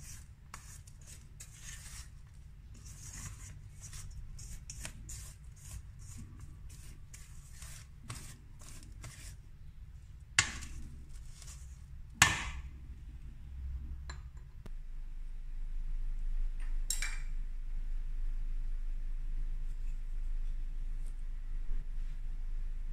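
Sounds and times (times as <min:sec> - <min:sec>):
spatula scraping dough in bowl: 0:00.0 - 0:09.4.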